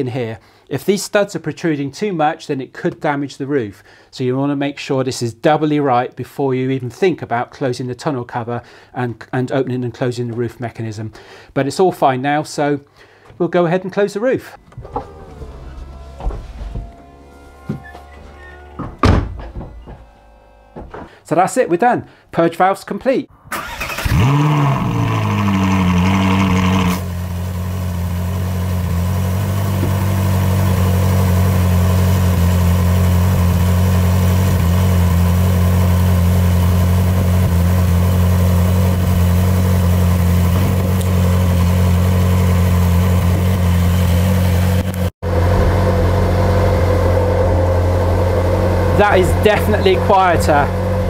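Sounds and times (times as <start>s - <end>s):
car engine starting and idling: 14.5s - 21.1s, 23.5s - 51.0s.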